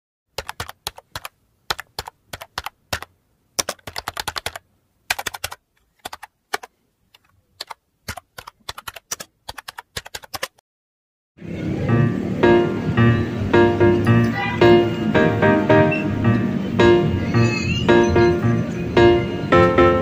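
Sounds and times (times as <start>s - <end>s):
keyboard key clicks: 0.4s - 10.6s.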